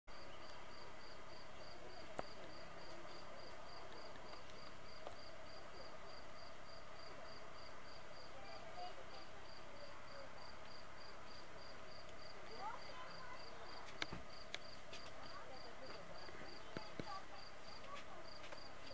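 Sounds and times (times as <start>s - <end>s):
faint outdoor background noise: 0.0s - 18.9s.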